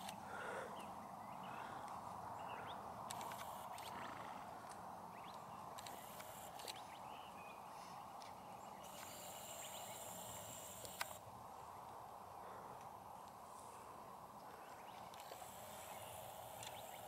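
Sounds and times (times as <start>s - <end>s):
sharp clicks: 3.1s - 4.0s, 4.6s - 6.8s, 8.9s - 11.2s, 15.1s - 17.0s.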